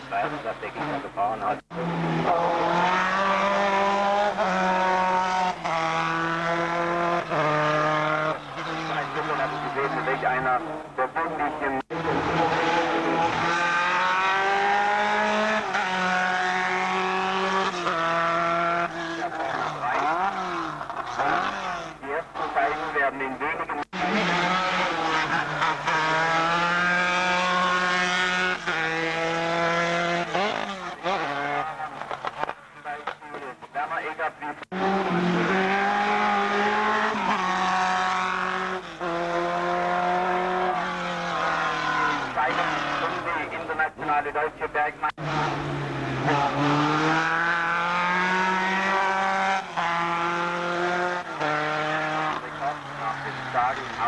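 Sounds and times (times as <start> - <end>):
race car engine at high revs: 0.0 - 54.0.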